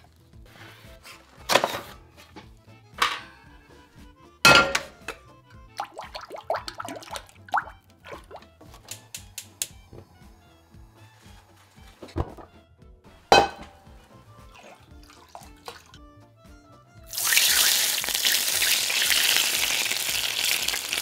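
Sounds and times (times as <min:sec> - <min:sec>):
soft background music: 0:00.0 - 0:21.0
hot oil sizzling: 0:17.1 - 0:21.0.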